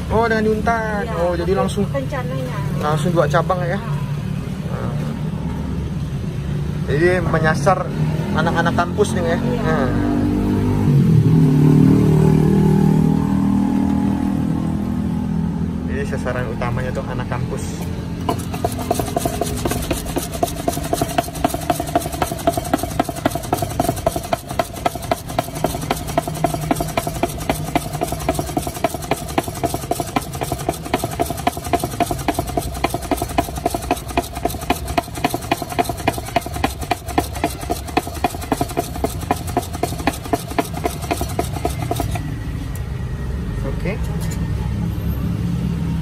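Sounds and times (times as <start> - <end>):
fast regular clicking: 18.2 - 42.3
drink mixer running: 18.2 - 42.4.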